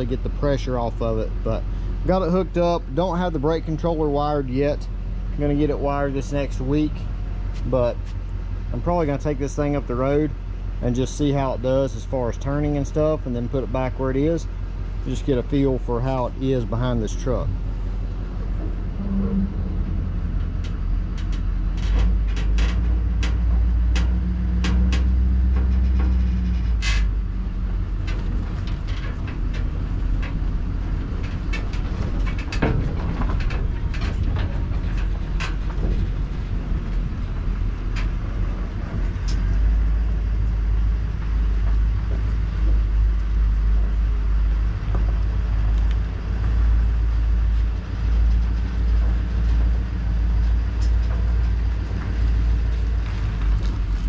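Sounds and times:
diesel truck engine rumble: 0:00.0 - 0:54.0
sharp rattles and knocks: 0:12.6 - 0:54.0.

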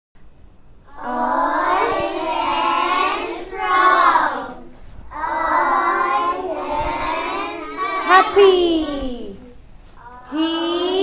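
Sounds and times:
children singing: 0:00.9 - 0:09.4, 0:10.2 - 0:11.0
woman leading singing: 0:01.0 - 0:02.0.

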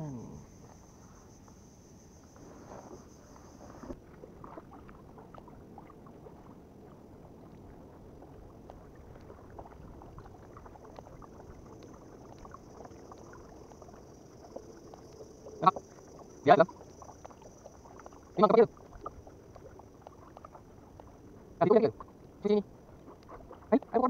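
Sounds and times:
high insect drone: 0:00.0 - 0:04.0, 0:10.6 - 0:20.0
paddle splashes in water: 0:02.4 - 0:24.0.

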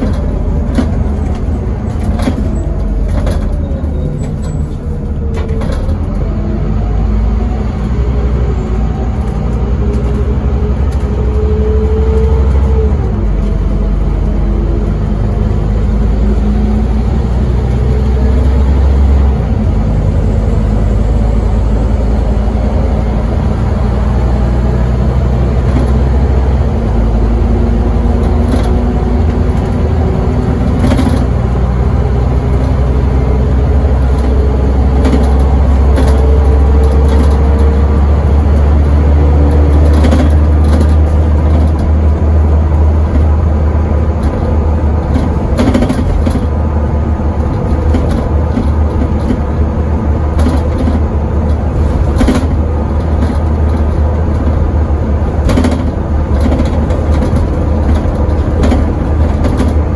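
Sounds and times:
bus engine droning: 0:00.0 - 0:59.9
rising engine whine: 0:00.0 - 0:59.9
road noise: 0:00.0 - 0:59.9
body knocks and rattles: 0:44.1 - 0:46.7, 0:50.2 - 0:59.9.

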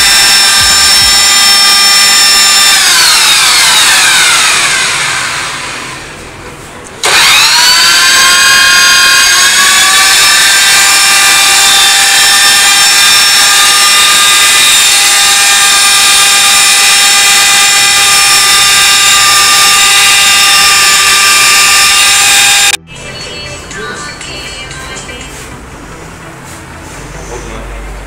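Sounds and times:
blade grinding thick food: 0:00.0 - 0:05.4, 0:07.0 - 0:22.8
electric motor whining: 0:00.0 - 0:06.2, 0:07.0 - 0:22.8.

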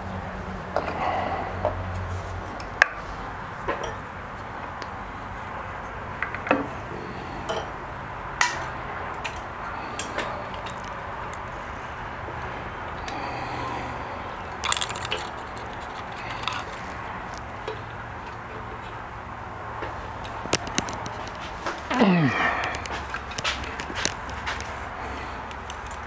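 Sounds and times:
small parts and tools clinking: 0:07.4 - 0:07.8, 0:08.4 - 0:11.5, 0:14.3 - 0:18.9, 0:20.2 - 0:22.0, 0:22.6 - 0:24.8.

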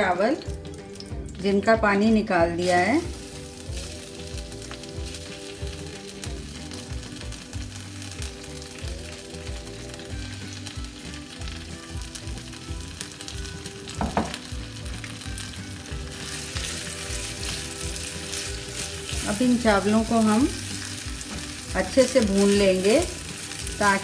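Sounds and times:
rice sizzling in hot oil: 0:02.5 - 0:24.0
knock: 0:14.0 - 0:14.4.

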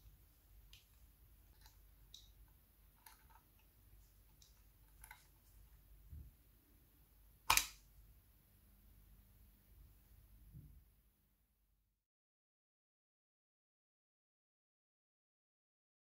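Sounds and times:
sharp loud click: 0:07.5 - 0:07.8.

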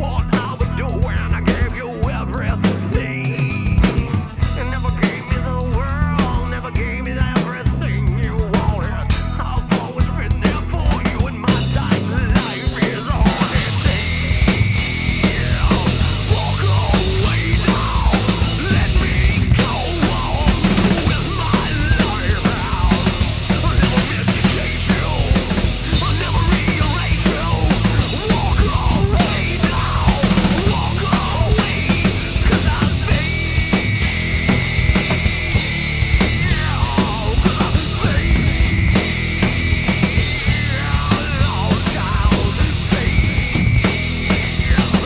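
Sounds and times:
bass guitar: 0:00.0 - 0:45.0
drum kit: 0:00.0 - 0:45.0
electric guitar: 0:00.0 - 0:45.0.

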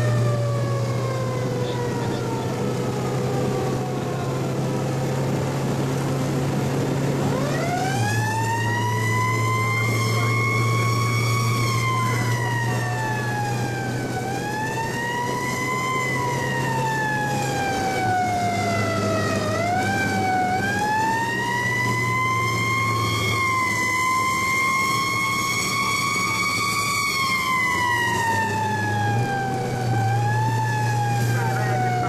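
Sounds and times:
fire truck siren wailing: 0:00.0 - 0:32.0
steady low drone: 0:00.0 - 0:32.0.

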